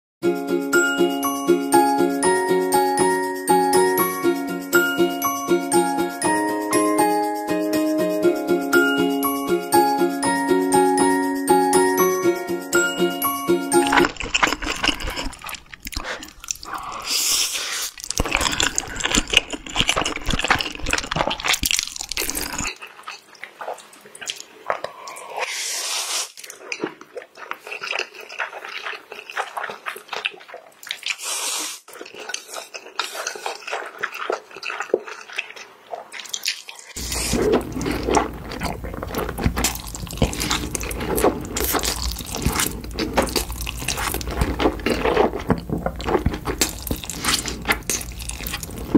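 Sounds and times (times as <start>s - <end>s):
slurping and chewing noodles: 13.7s - 48.9s.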